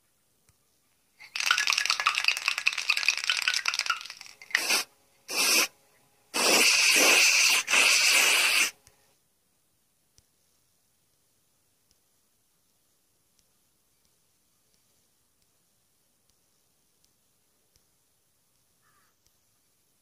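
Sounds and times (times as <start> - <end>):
spray can rattling: 1.2 - 5.7, 6.4 - 8.7
spray paint hissing: 1.3 - 5.7, 6.4 - 8.8.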